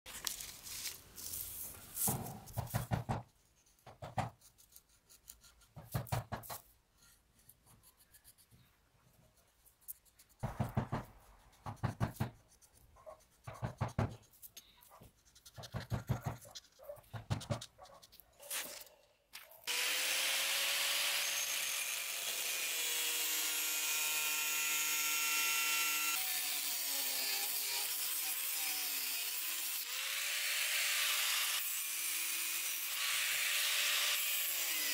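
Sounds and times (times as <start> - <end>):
paper rubbing and scraping: 0.1 - 2.8, 9.3 - 19.6
angle grinder cutting steel: 19.6 - 34.9.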